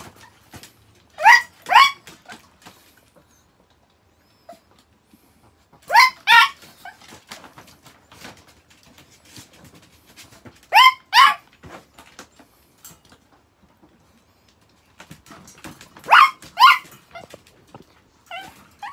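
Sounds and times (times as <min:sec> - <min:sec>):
faint clicks and scratches: 0:00.0 - 0:18.9
small dog yapping: 0:01.2 - 0:02.5, 0:05.8 - 0:07.5, 0:10.7 - 0:11.5, 0:16.0 - 0:17.4, 0:18.3 - 0:18.9.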